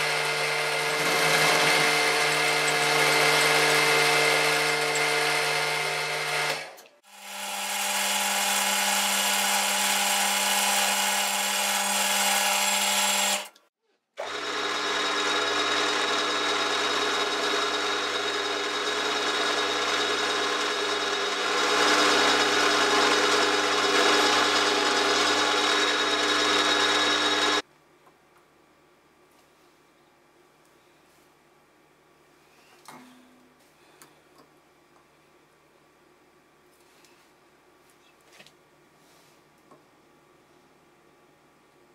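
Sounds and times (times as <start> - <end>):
cutter cutting metal: 0.0 - 27.6
milling machine motor whine: 14.2 - 27.6.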